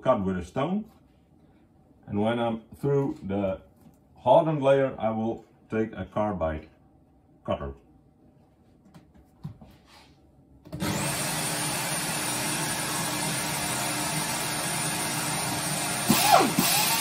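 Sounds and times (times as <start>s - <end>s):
electric drill running: 10.7s - 17.0s.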